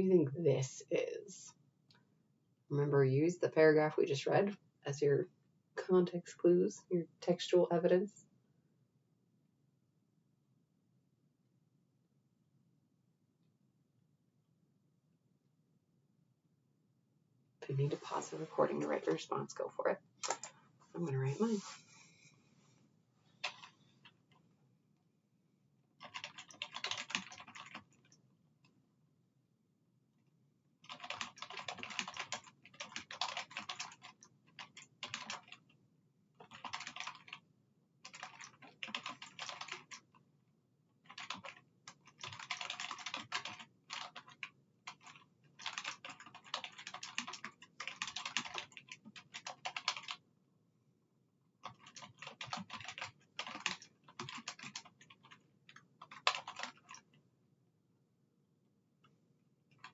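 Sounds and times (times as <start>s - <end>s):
typing on a keyboard: 20.2s - 20.5s, 23.4s - 24.4s, 26.0s - 28.2s, 30.8s - 35.8s, 36.4s - 37.4s, 38.0s - 40.2s, 41.0s - 50.2s, 51.6s - 57.1s.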